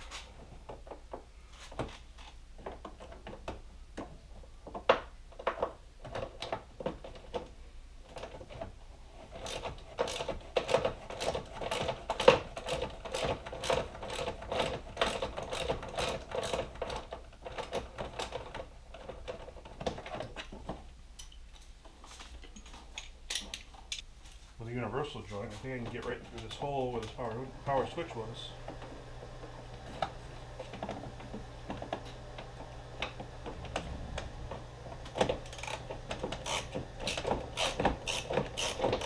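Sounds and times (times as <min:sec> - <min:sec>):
hand ratchet clicking: 0:09.4 - 0:18.4, 0:35.4 - 0:39.0.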